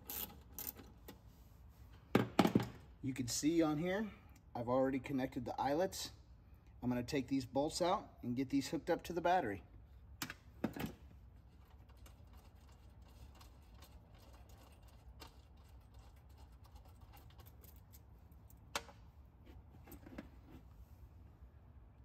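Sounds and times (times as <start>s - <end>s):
small clicks and rattles of wires: 10.2s - 19.0s.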